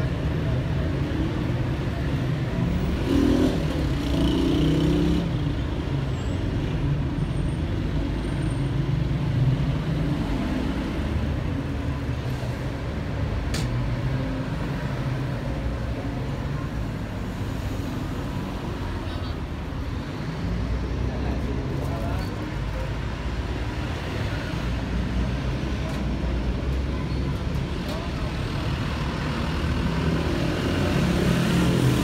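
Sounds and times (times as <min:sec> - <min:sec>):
street traffic passing: 0:00.0 - 0:32.0.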